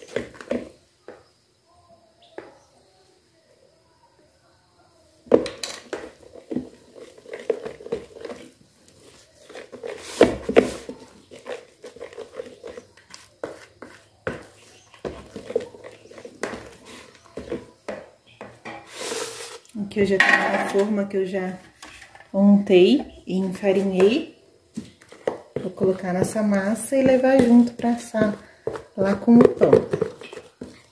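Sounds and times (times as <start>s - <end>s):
utensils knocking and scraping bowls: 5.5s - 24.3s, 24.9s - 30.9s
dishes clattering: 17.9s - 18.9s, 20.2s - 21.0s.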